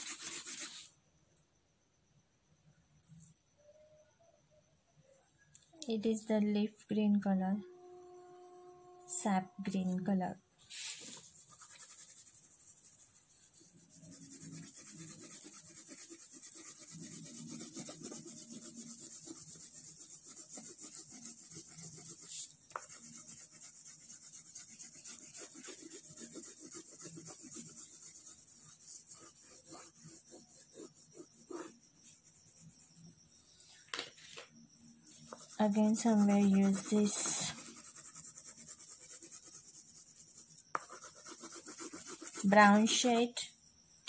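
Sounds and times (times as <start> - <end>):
crayon scraping on paper: 0.0 - 0.9, 10.8 - 32.7, 35.2 - 43.0.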